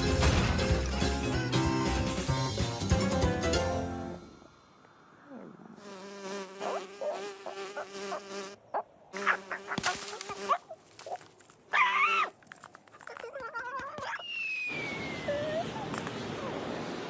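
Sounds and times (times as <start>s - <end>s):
cartoon bee buzzing: 5.8s - 8.6s, 9.2s - 10.6s.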